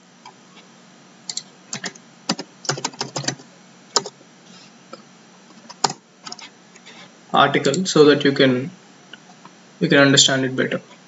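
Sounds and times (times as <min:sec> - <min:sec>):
computer keyboard typing: 0:01.3 - 0:03.4, 0:04.0 - 0:04.2, 0:05.7 - 0:06.4.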